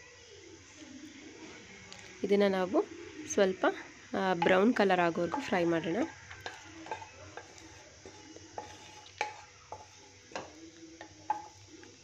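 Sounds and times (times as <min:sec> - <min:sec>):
oil sizzling: 0:00.2 - 0:12.0
wooden spatula scraping a pan: 0:04.4 - 0:10.6.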